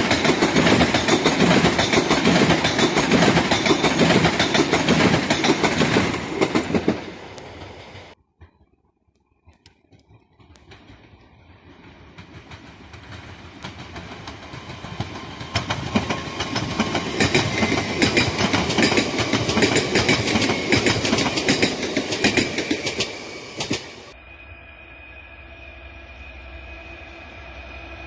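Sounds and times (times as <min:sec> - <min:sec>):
train wheels clattering: 0:00.0 - 0:08.2, 0:10.0 - 0:24.2
train whine: 0:00.0 - 0:08.6, 0:09.9 - 0:28.0.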